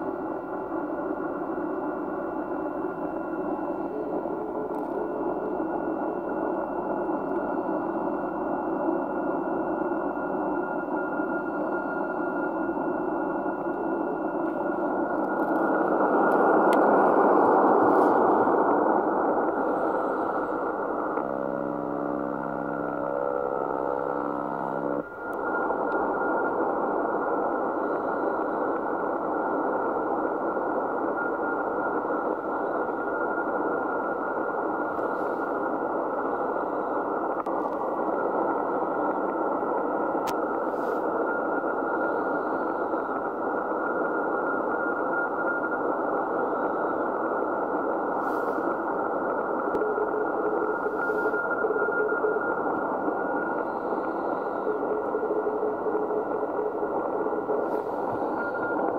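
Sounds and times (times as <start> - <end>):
radio static hiss: 0.0 - 58.9
buzzing interference tone: 14.4 - 35.6, 46.4 - 58.9.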